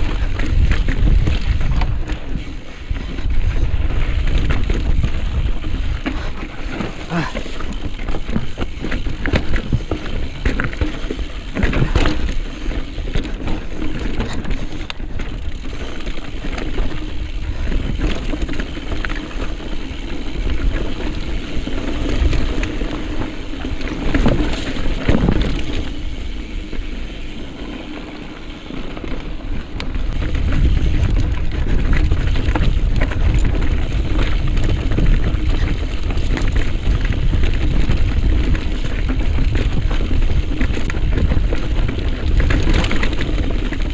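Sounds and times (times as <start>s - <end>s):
wind buffeting microphone: 0.0s - 27.4s, 28.4s - 43.9s
mountain bike rattling over rocks: 0.0s - 43.9s.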